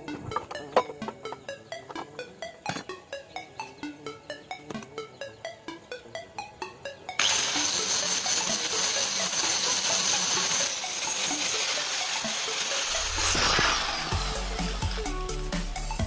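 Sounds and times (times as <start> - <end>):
angle grinder cutting metal: 7.2 - 15.8.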